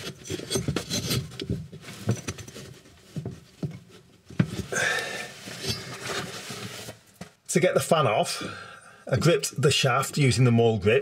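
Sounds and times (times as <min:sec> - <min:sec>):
metal scrape: 0:05.4 - 0:07.0.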